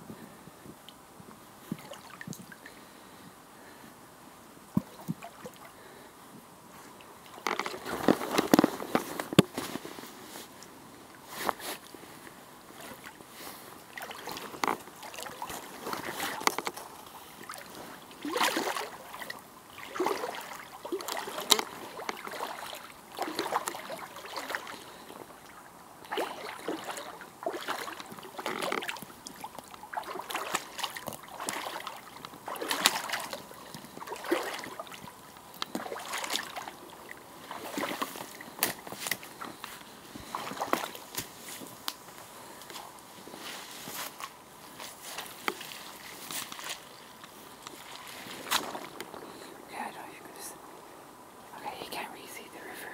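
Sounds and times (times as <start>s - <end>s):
boots splashing through muddy water: 7.3s - 9.9s, 12.8s - 25.3s, 26.0s - 41.9s, 42.5s - 49.3s.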